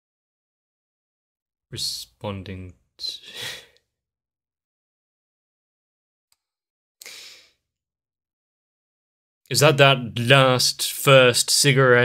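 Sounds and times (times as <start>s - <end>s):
breathy exhale: 3.2s - 3.8s, 7.0s - 7.6s.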